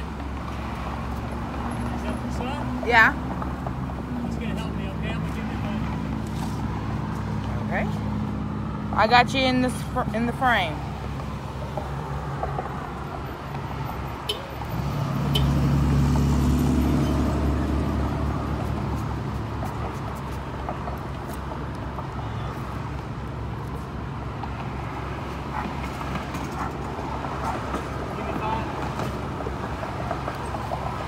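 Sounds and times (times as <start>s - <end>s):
traffic engine rumble: 0.0s - 31.0s
vehicle passing by: 0.0s - 31.0s.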